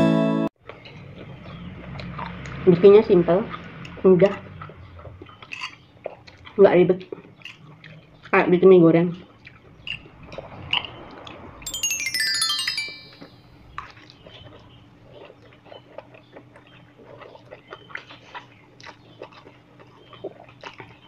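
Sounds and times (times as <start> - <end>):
bright chime sound effect: 11.7 - 13.4.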